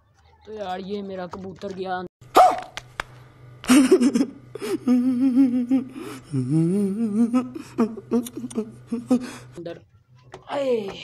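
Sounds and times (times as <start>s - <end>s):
man sobbing and wailing: 3.7s - 9.6s.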